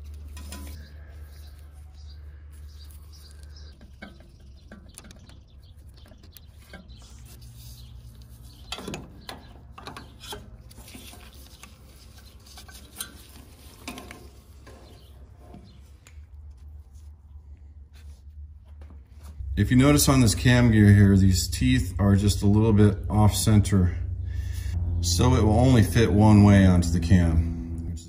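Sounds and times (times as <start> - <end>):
steady low hum: 0.0 - 28.0
metal clicks scrapes and knocks: 0.1 - 0.8, 8.2 - 15.8.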